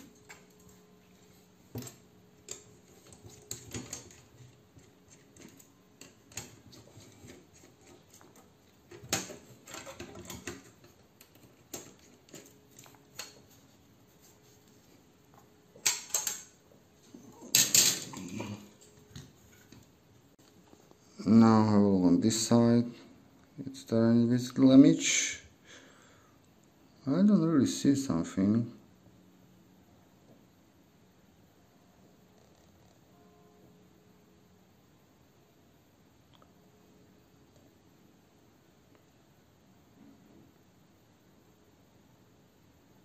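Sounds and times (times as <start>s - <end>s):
metal parts clattering: 17.5s - 18.2s.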